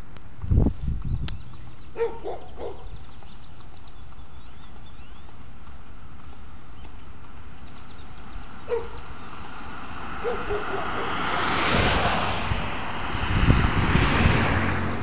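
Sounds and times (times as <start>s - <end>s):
cars driving past: 8.2s - 15.0s.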